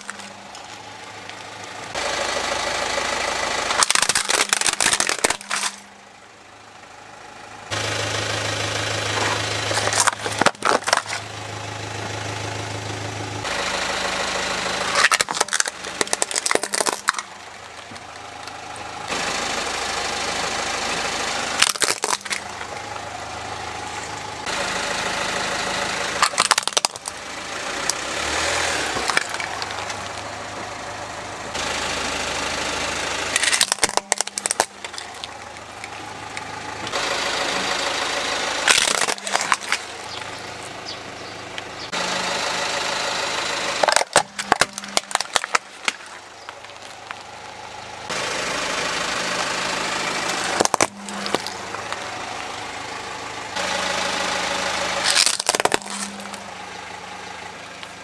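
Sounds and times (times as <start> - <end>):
plastic toys cracking and snapping: 0.0 - 1.4, 3.7 - 5.9, 9.7 - 11.3, 14.9 - 18.6, 21.6 - 22.7, 26.2 - 27.2, 29.0 - 30.2, 33.3 - 36.5, 38.6 - 40.3, 43.8 - 47.3, 50.3 - 52.1, 55.0 - 56.4
car engine idling: 0.0 - 58.0.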